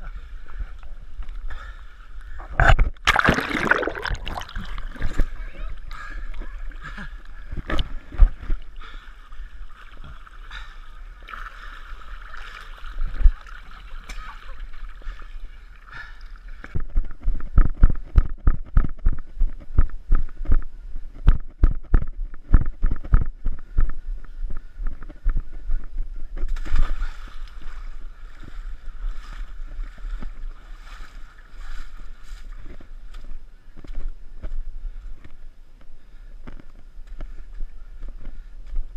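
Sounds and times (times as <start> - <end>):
footsteps in mud and water: 2.6 - 5.4
water sloshing and splashing: 2.6 - 5.4, 6.4 - 17.4
rushing splashy noise: 3.0 - 4.9.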